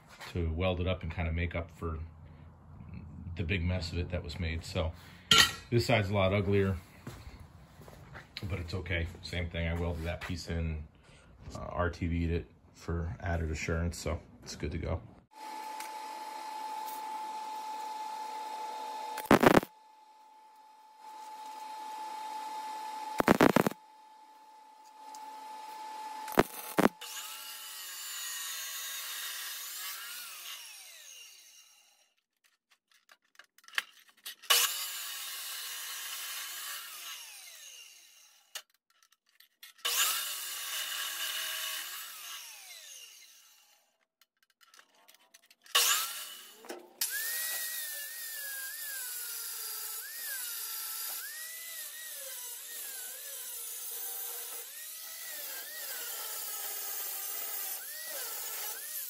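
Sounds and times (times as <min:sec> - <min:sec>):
chop saw whining: 0:15.3 - 0:19.7, 0:20.9 - 0:23.8, 0:24.7 - 0:32.3, 0:34.2 - 0:38.8, 0:39.7 - 0:44.5, 0:45.4 - 0:59.0
angle grinder grinding metal: 0:19.1 - 0:19.7, 0:23.1 - 0:23.8, 0:25.1 - 0:32.2, 0:33.8 - 0:59.0.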